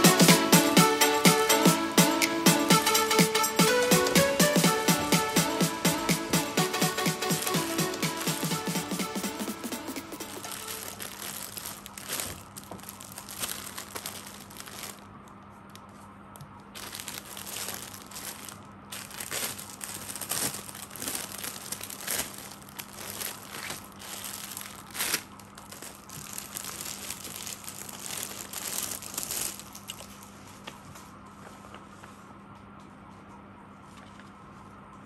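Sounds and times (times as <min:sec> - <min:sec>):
plastic packaging crinkling: 0:04.4 - 0:30.4.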